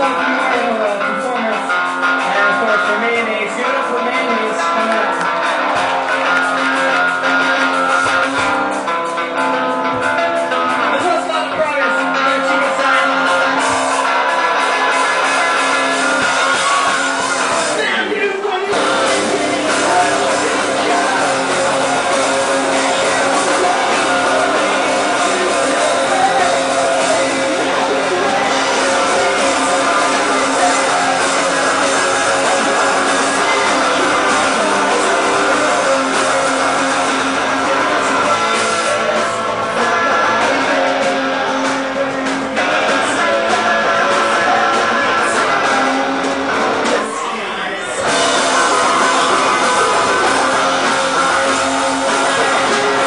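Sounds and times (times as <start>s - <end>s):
drums: 0.0s - 53.0s
electric guitars: 0.0s - 53.0s
person singing: 10.9s - 53.0s.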